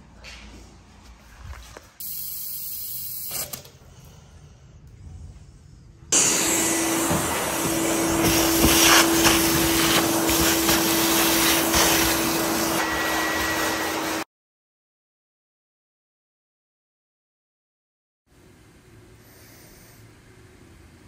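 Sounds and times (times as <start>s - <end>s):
vacuum cleaner sucking debris: 6.2s - 14.2s.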